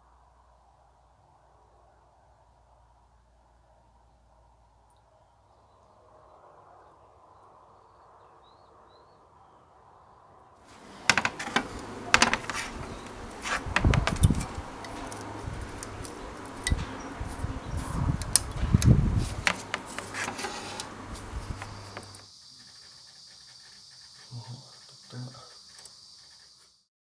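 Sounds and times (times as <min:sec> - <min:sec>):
rusty sheet metal crackling and snapping: 0:10.7 - 0:22.2
dull thumps: 0:10.8 - 0:15.9.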